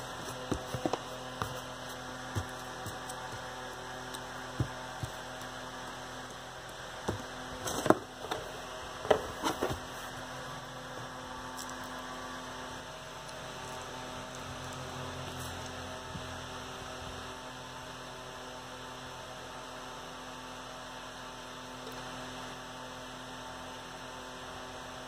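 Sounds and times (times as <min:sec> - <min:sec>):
electrical hum: 0:00.0 - 0:17.4.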